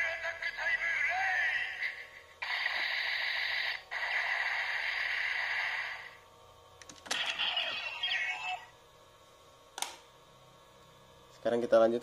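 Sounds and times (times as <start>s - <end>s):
static-like electronic hiss: 0.0s - 6.2s, 7.0s - 8.8s
sharp plastic clicks: 9.8s - 10.0s.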